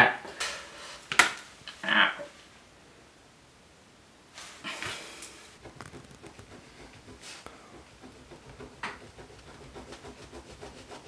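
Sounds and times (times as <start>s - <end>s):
pen nib scratching on paper: 5.6s - 11.0s.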